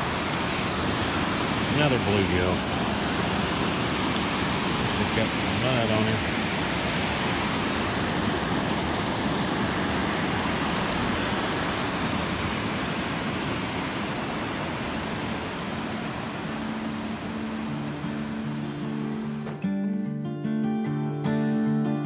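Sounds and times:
water rushing down spillway: 0.0 - 19.3
guitar music: 16.4 - 22.0.

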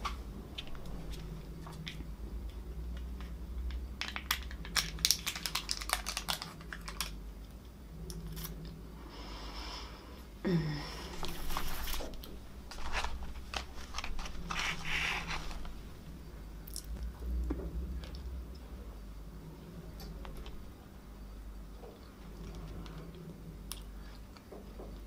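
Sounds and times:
woman humming mm: 10.4 - 11.5
foil lid peeling with crinkles: 11.2 - 15.8.

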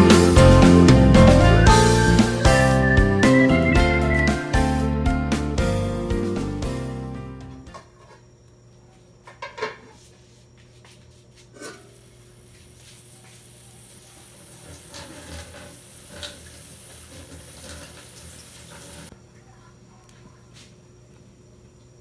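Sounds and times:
water sizzling on hot wok: 11.9 - 19.1.

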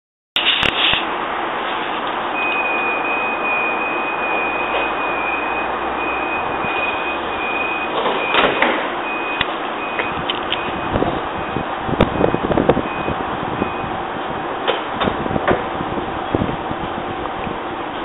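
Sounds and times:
high wheel squeal: 2.4 - 8.4.

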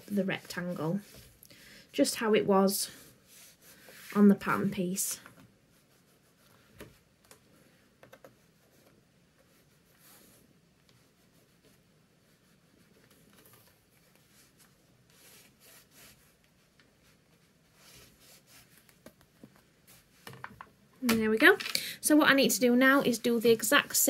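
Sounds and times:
chalk scratching on fabric: 2.9 - 4.5, 14.1 - 16.4, 17.0 - 18.8.

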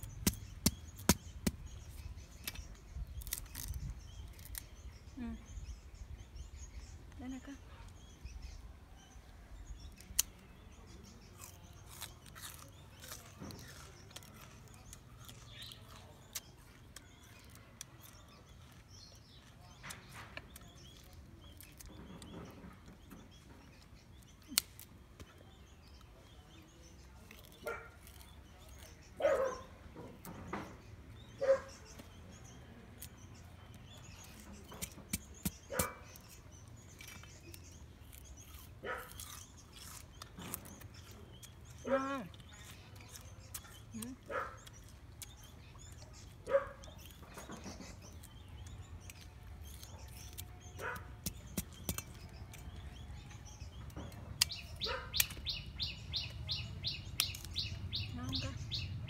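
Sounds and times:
cleaver chopping cane stalk: 0.0 - 2.6, 34.3 - 36.3, 51.2 - 52.4.

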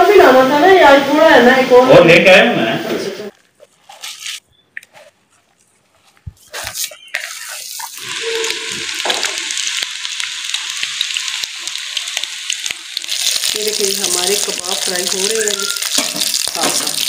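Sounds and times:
soft clicks from hands mixing: 3.4 - 7.4
food sizzling in hot oil: 6.4 - 17.0.

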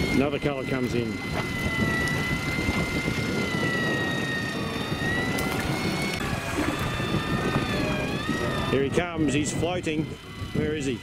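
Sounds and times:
electric reel motor whine: 0.0 - 11.0.

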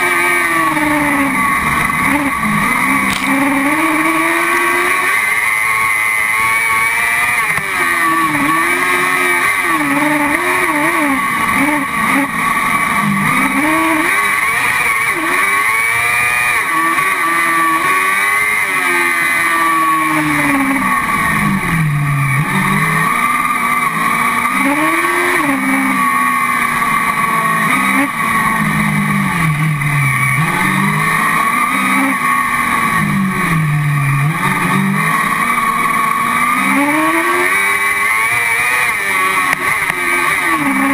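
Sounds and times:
steady high rush: 0.0 - 6.9
buggy engine revving: 0.0 - 40.9.

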